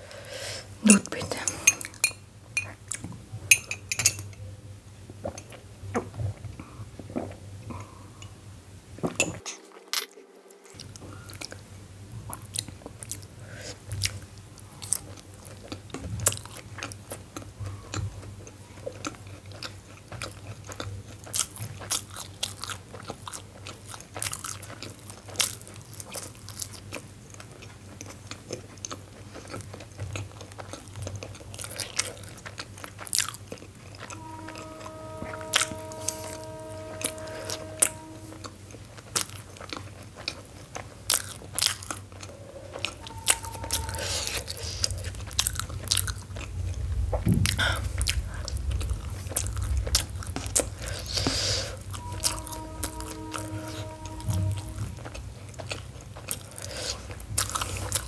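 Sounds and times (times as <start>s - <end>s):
low steady hum: 0.0s - 58.0s
chewing with mouth clicks: 12.2s - 34.2s, 38.7s - 52.4s, 54.6s - 58.0s.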